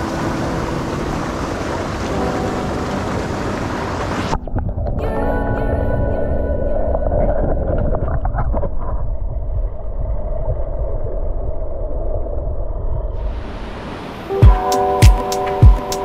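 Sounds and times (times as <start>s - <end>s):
background music: 0.0s - 7.0s, 14.3s - 16.0s
underwater stream rumble: 0.0s - 14.2s
music with a steady beat: 14.4s - 16.0s.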